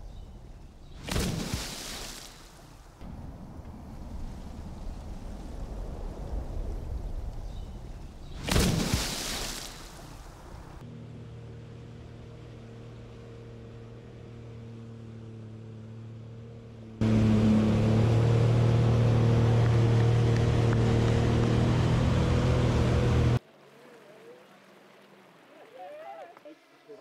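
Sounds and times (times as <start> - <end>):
churning water and spray: 1.0 - 10.8
jet ski engine running: 10.8 - 23.4.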